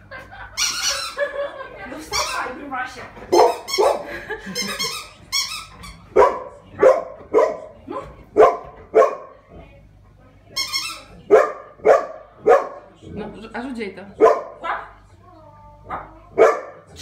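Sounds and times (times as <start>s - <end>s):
dog barking: 3.3s - 4.1s, 6.1s - 9.4s, 11.3s - 12.9s, 14.2s - 14.9s, 15.9s - 16.9s
high squeaks: 3.4s - 6.1s, 10.5s - 11.2s.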